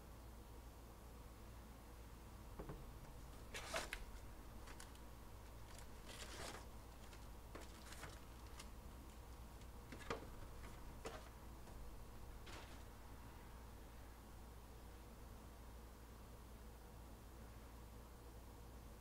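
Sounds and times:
foil packs crinkling and rustling: 3.4s - 11.3s, 12.4s - 13.0s.

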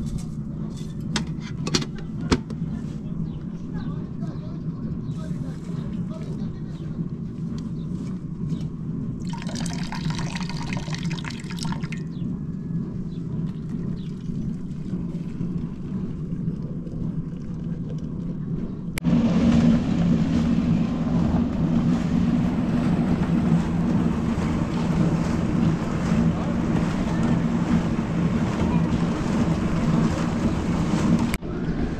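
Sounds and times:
low hum: 0.0s - 31.9s
water pouring into metal kettle: 9.2s - 12.1s, 13.4s - 18.4s.

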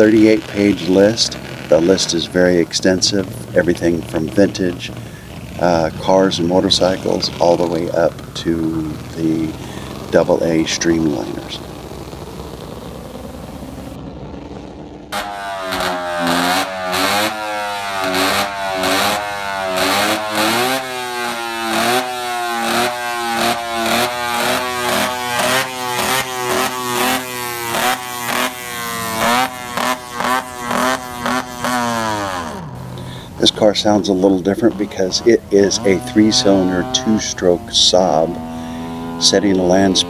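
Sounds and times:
motorcycle engine revving: 0.0s - 40.0s.

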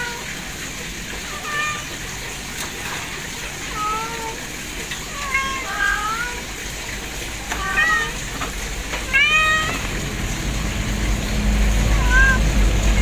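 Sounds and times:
kitten meowing: 1.3s - 2.0s, 5.1s - 6.4s, 7.5s - 8.2s, 9.0s - 9.9s, 11.9s - 13.0s.

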